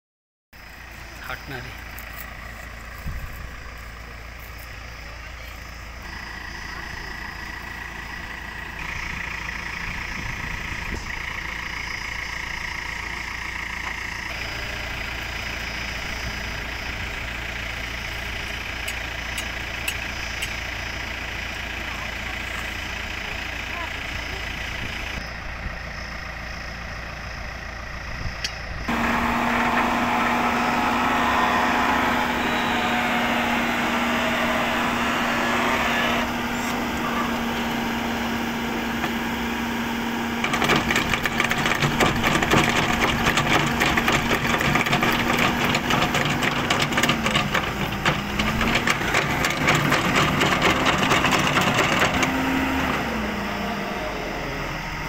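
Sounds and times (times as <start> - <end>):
concrete mixer engine running: 0.6 - 55.0
hydraulic whine: 4.4 - 26.6, 28.2 - 55.0
dense rapid rattle: 40.4 - 52.4.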